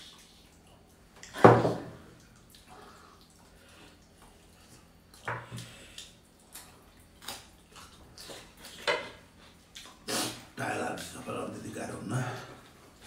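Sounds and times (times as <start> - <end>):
chewing: 2.2 - 10.4.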